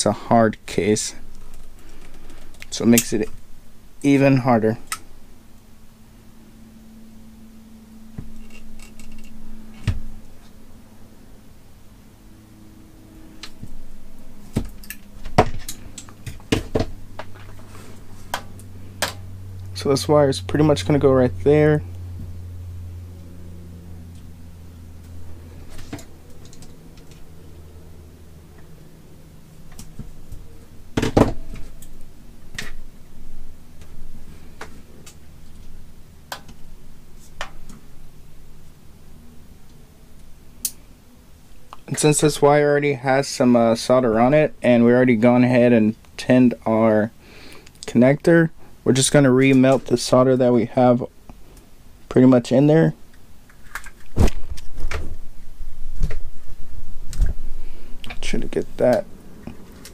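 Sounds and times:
faint low hum: 0.0s - 59.9s
wire strippers clicking: 8.4s - 10.6s.

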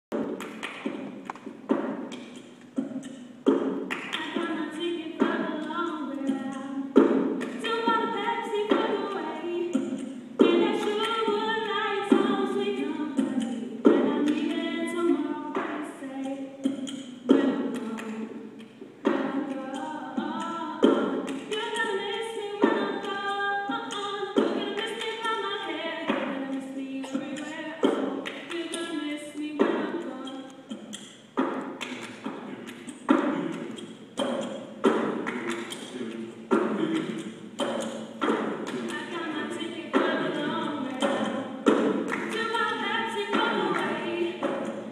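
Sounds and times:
choir singing a cappella: 4.2s - 31.1s, 32.0s - 44.9s
choir voices singing: 32.4s - 44.9s.

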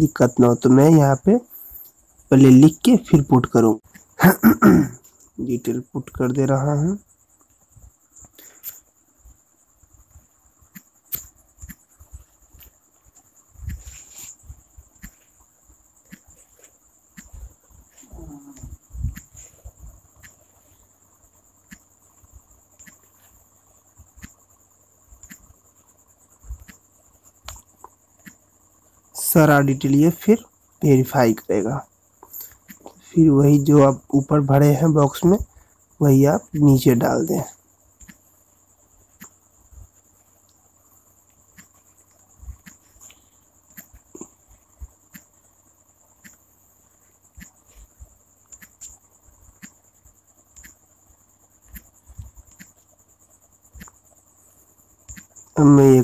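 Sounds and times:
crickets chirring: 0.0s - 56.0s
faint high-pitched whine: 0.0s - 56.0s.

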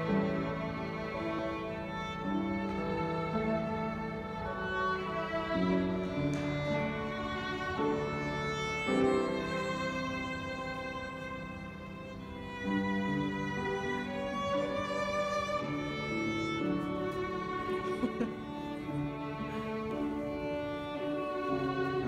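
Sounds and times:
bowed violin melody: 0.0s - 22.0s.

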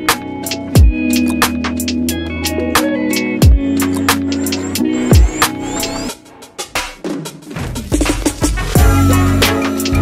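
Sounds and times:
sustained synth chords: 3.4s - 6.7s.

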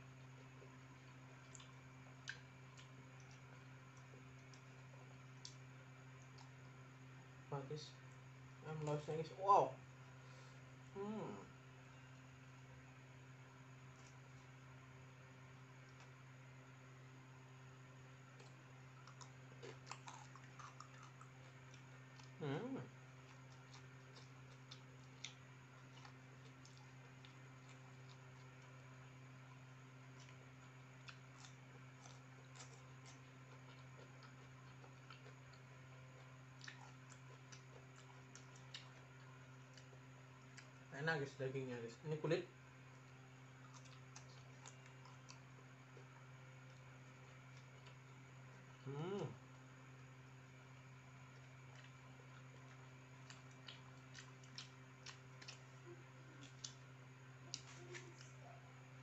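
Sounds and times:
steady low hum: 0.0s - 59.0s
chewing mouth noises: 0.4s - 6.8s, 18.3s - 22.4s, 23.1s - 28.9s, 30.1s - 40.9s, 43.4s - 48.2s, 51.3s - 58.5s
fingers picking at food: 57.5s - 58.4s.

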